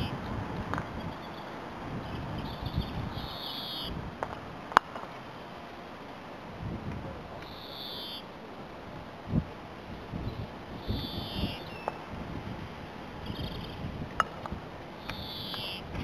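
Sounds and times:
bird calling: 1.0s - 4.0s, 7.4s - 8.3s, 10.8s - 12.0s, 15.0s - 16.0s.

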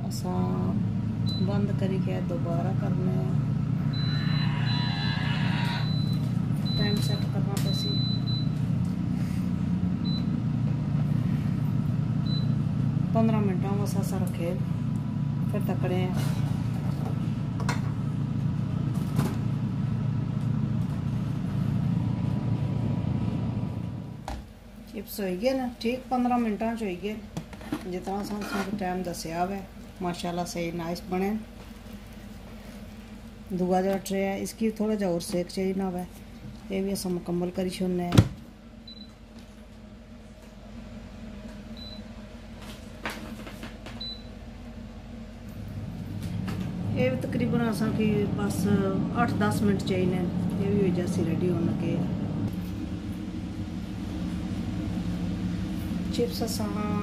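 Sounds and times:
air fryer fan hum: 0.0s - 28.2s, 28.8s - 57.0s.

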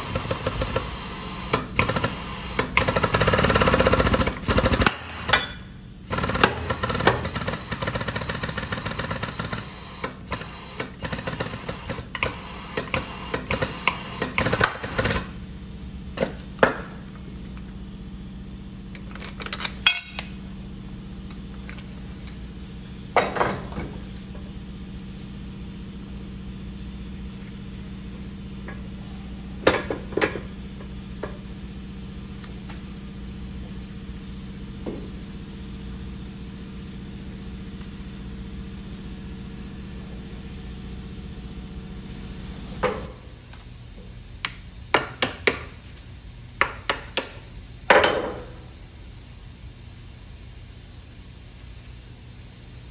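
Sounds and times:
low steady hum: 15.3s - 35.3s
hammer striking metal: 19.8s - 20.3s.

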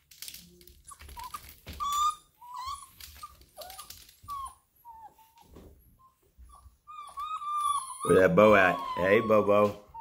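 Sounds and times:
puppies whining: 0.6s - 10.0s.

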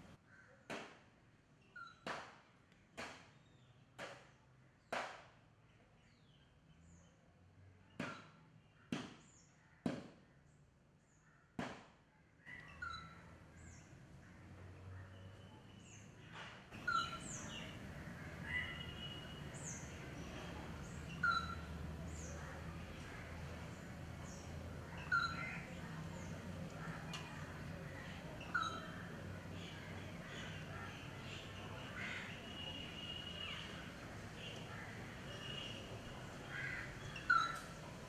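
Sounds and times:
birds chirping: 12.4s - 38.0s
steady background noise: 13.0s - 38.0s.

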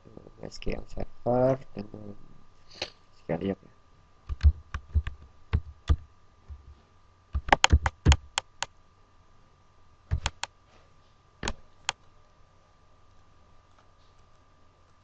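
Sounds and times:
keyboard typing clicks: 4.3s - 6.6s, 7.4s - 8.7s, 10.1s - 10.5s, 11.4s - 12.0s.

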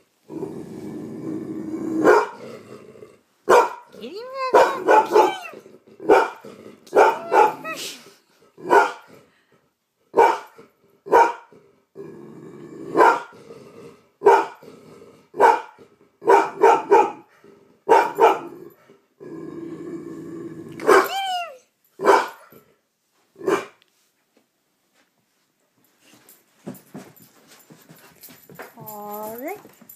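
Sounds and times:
dog growling: 0.3s - 3.3s, 3.9s - 9.5s, 10.5s - 16.3s, 17.3s - 21.1s
dog barking: 2.0s - 2.4s, 3.5s - 7.8s, 8.6s - 9.1s, 10.1s - 11.5s, 13.0s - 13.3s, 14.2s - 14.6s, 15.4s - 17.3s, 17.9s - 18.6s, 20.8s - 21.2s, 22.0s - 22.6s, 23.4s - 23.8s.

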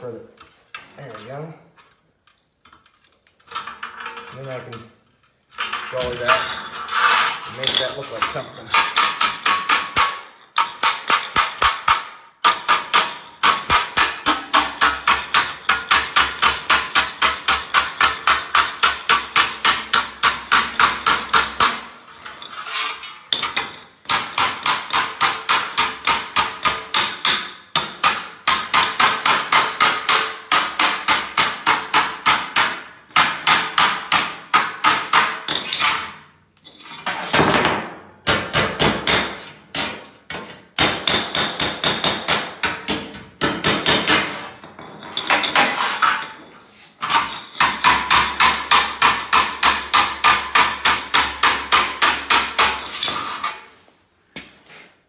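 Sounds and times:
hammer striking sheet metal: 7.8s - 21.9s, 23.4s - 36.2s, 37.3s - 44.6s, 47.0s - 53.7s.

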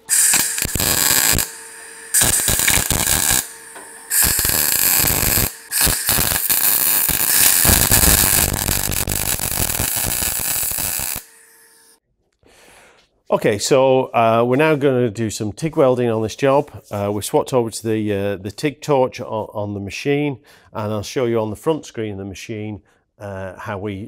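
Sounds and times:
welding arc crackling: 0.0s - 11.9s.

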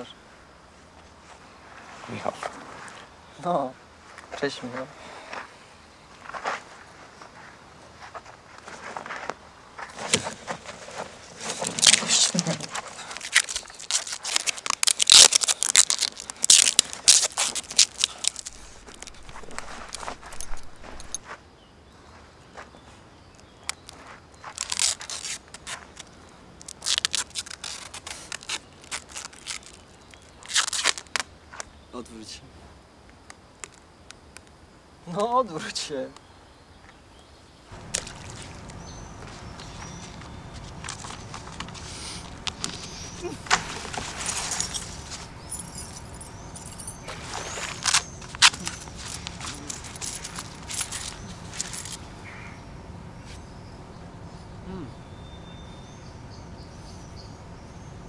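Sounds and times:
case being rustled open: 9.9s - 21.2s, 37.8s - 52.0s
adhesive tape ripping off roll: 11.7s - 20.4s, 24.4s - 31.3s
faint high chirping: 35.9s - 43.5s, 44.2s - 58.0s.

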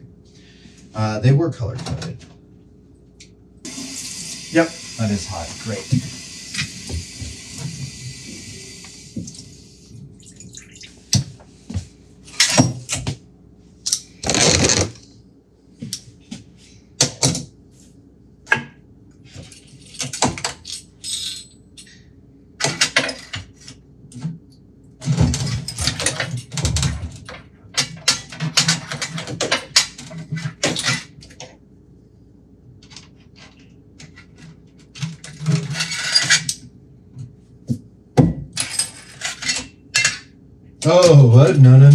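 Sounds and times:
tap water running into sink: 3.7s - 9.4s.

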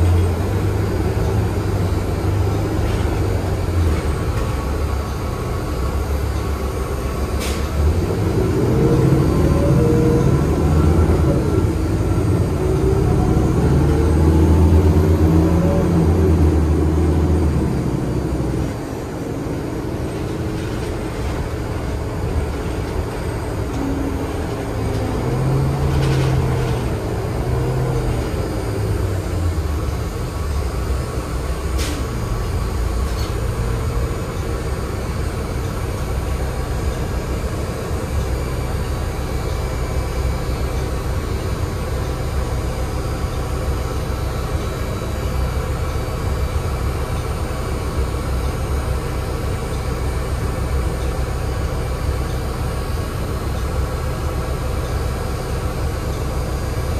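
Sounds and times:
bus engine running: 0.0s - 56.9s
road noise: 0.0s - 56.9s.

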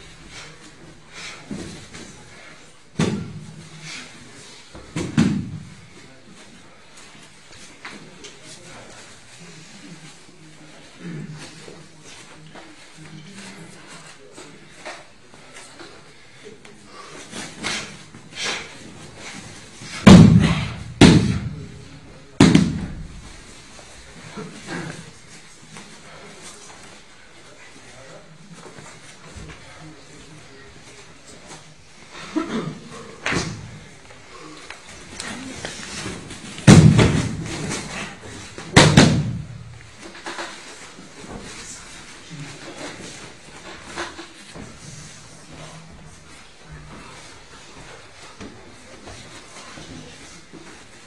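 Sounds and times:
body slapping onto mat: 4.9s - 5.7s, 19.8s - 21.7s, 22.4s - 23.2s, 35.6s - 39.7s.

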